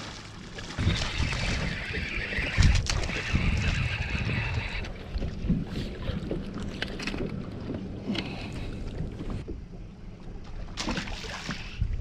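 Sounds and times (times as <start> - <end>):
waves lapping against boat hull: 0.0 - 12.0
wind noise: 0.6 - 9.6.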